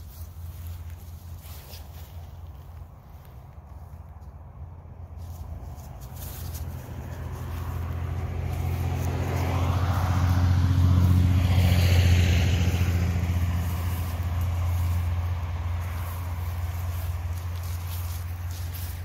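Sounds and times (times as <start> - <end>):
vehicle engine passing: 4.2 - 19.0.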